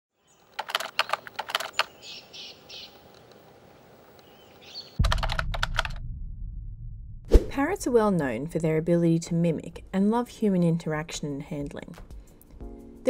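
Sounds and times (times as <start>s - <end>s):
rapid typing-like clicks: 0.5s - 1.9s, 5.0s - 6.0s.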